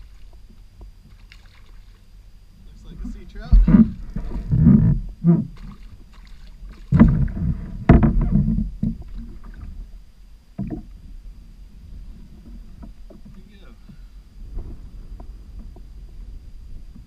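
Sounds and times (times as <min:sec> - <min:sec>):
fish splashing in water: 0:01.0 - 0:02.1, 0:05.5 - 0:07.6
fish knocking against kayak hull: 0:03.5 - 0:05.8, 0:06.7 - 0:09.6.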